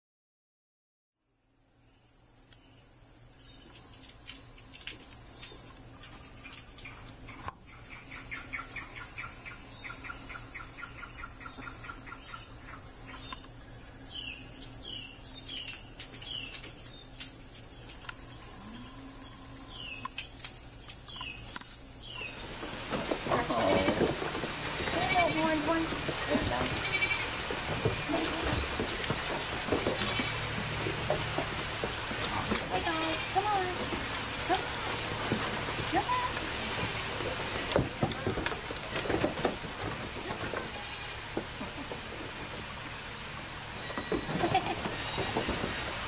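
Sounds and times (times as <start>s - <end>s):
animal calls: 23.2s - 30.6s.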